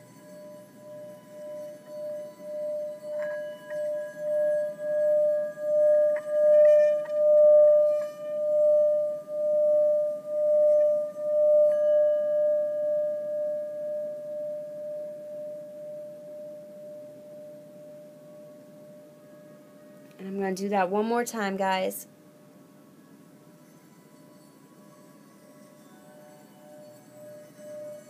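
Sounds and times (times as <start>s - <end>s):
singing bowl ringing: 0.0s - 20.0s, 22.9s - 28.0s.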